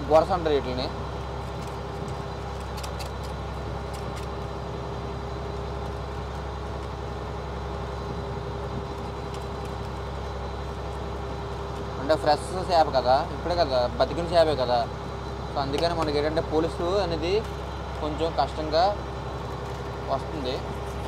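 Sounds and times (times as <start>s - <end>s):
boat diesel engine running: 0.0s - 21.0s.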